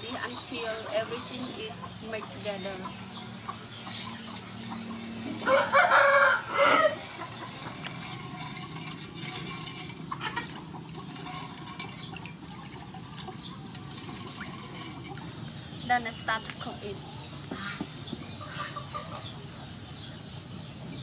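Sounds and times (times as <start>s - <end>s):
wooden spoon stirring metal pot: 4.0s - 16.6s
rooster crowing: 5.4s - 7.2s.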